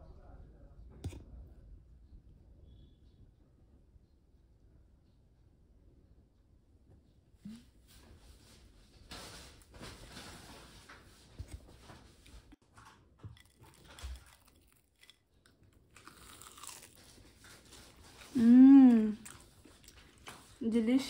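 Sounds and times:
crunching and chewing food: 0:09.0 - 0:21.0
person humming mmm: 0:18.4 - 0:19.2.

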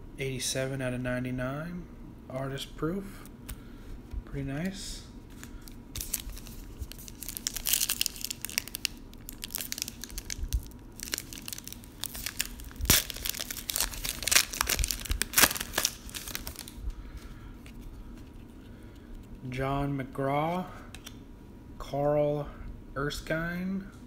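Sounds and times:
foil wrapper crinkling and tearing: 0:05.3 - 0:17.2.

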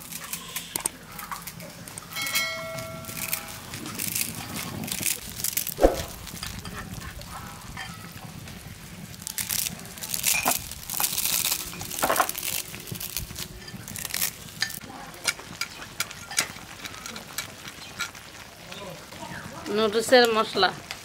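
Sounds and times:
water boiling and sizzling: 0:00.0 - 0:21.0
dry noodles crunching: 0:03.0 - 0:06.4, 0:09.1 - 0:14.8.

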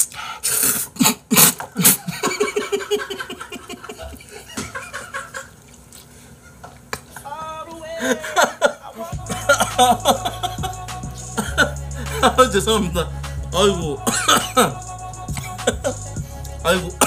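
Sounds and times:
man slurping noodles: 0:00.0 - 0:02.1
man laughing: 0:01.7 - 0:05.6, 0:07.3 - 0:13.0, 0:13.6 - 0:17.0.

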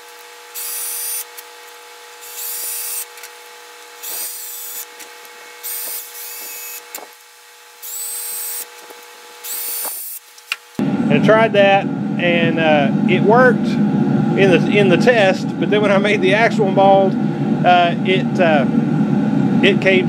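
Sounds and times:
cordless drill driving screws: 0:00.0 - 0:10.8
screws clicking: 0:00.0 - 0:10.8
faint steady hum: 0:00.0 - 0:20.0.

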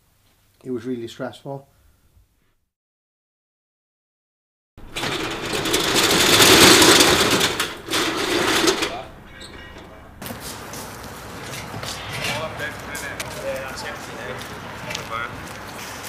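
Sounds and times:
metal roller shutter rattling: 0:04.8 - 0:15.3.

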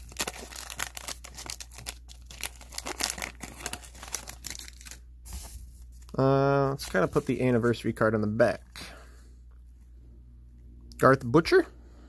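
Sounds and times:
card pack wrapper tearing: 0:00.0 - 0:05.0.

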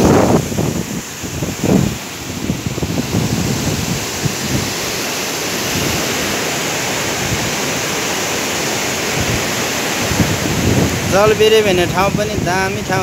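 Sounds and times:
waterfall roaring: 0:00.0 - 0:13.0
wind buffeting microphone: 0:00.0 - 0:13.0.

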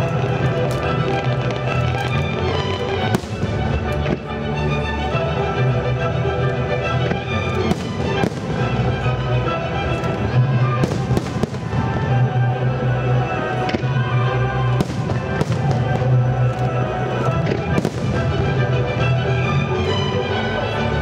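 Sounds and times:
fireworks bursting with sharp bangs: 0:00.0 - 0:04.3, 0:07.1 - 0:09.0, 0:10.1 - 0:12.2, 0:14.7 - 0:18.7
loud music: 0:00.0 - 0:21.0.

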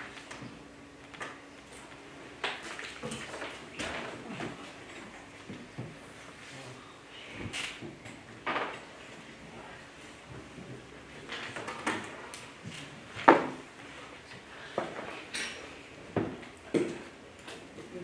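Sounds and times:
small knocks and clicks at desks: 0:11.3 - 0:13.6, 0:14.7 - 0:18.0.

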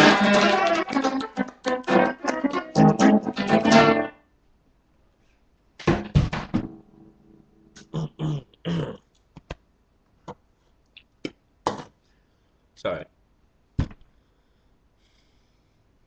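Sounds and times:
acoustic guitar strumming: 0:00.0 - 0:04.1.

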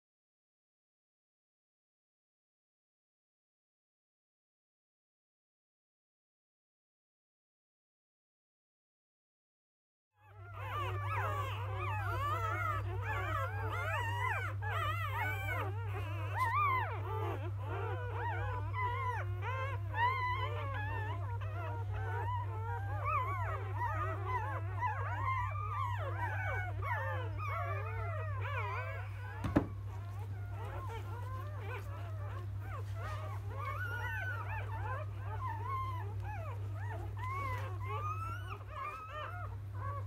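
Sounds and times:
puppies squeaking and whimpering: 0:10.2 - 0:40.0.

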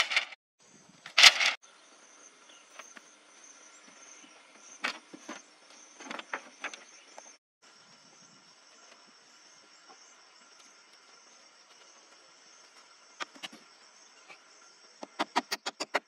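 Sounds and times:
bamboo strips clattering: 0:00.0 - 0:00.4, 0:01.1 - 0:01.6.

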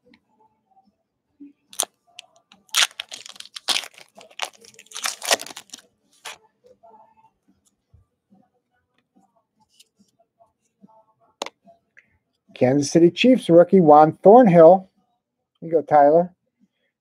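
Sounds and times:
foil wrapper tearing: 0:02.7 - 0:06.4.

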